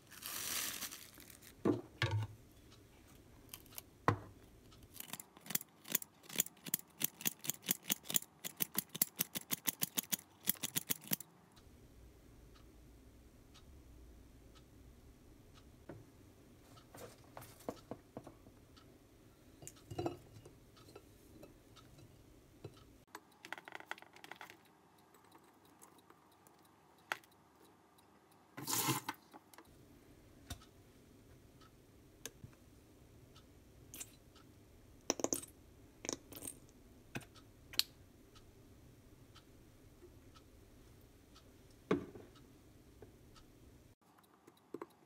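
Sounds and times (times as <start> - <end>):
utensils clicking on ceramic plate: 4.9 - 11.2.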